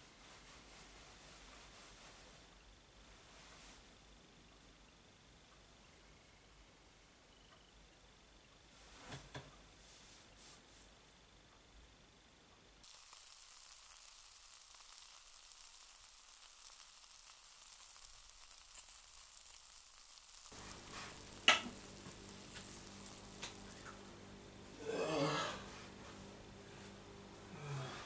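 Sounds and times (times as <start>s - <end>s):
low steady hum: 12.1s - 27.9s
bread sizzling in a frying pan: 12.8s - 24.2s.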